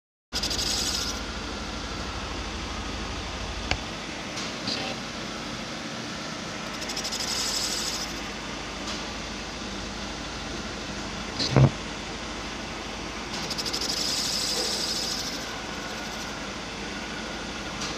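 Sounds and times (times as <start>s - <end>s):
high cutting hiss: 0.4s - 1.2s, 6.7s - 8.2s, 13.4s - 16.3s
cutting machine whirring: 13.4s - 16.4s.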